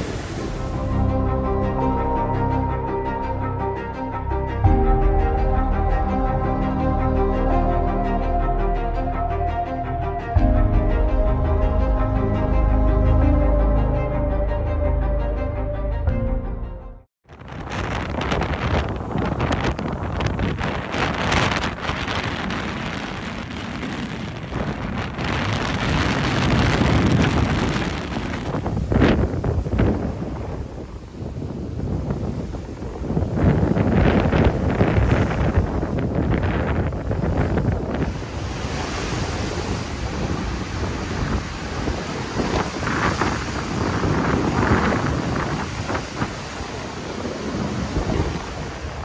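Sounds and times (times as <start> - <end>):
wind buffeting the microphone: 17.2 - 49.0
surf breaking against a seawall: 33.4 - 49.0.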